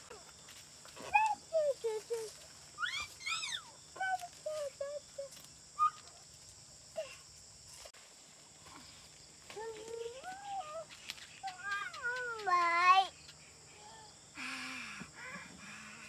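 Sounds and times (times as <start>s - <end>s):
high-pitched insect hum: 0.0s - 16.0s
toddler babbling: 1.0s - 6.0s, 9.6s - 13.1s.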